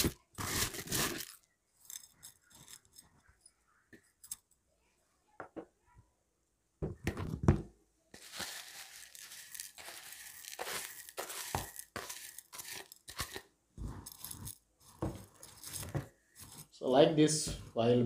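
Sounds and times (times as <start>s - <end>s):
crystal salt sliding into bowl: 8.2s - 14.5s.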